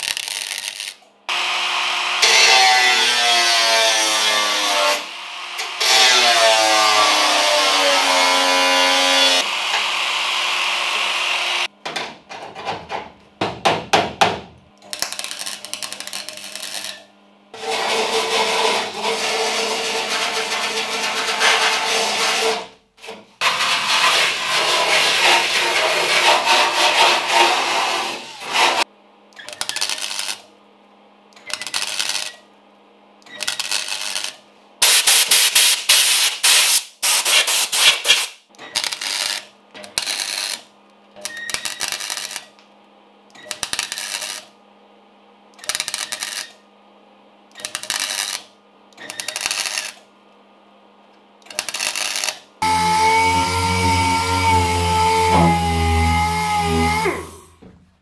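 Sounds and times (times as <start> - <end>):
welder crackling: 0.0 - 1.0, 14.8 - 17.0, 29.5 - 30.4, 31.5 - 32.4, 33.4 - 40.6, 41.3 - 42.5, 43.5 - 44.5, 45.6 - 46.6, 47.6 - 48.5, 49.1 - 50.0, 51.5 - 52.4.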